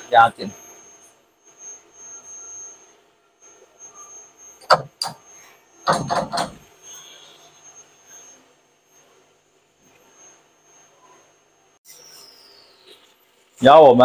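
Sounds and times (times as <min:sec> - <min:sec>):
faint high whine: 0:00.0 - 0:14.0
knocks: 0:05.9 - 0:06.6.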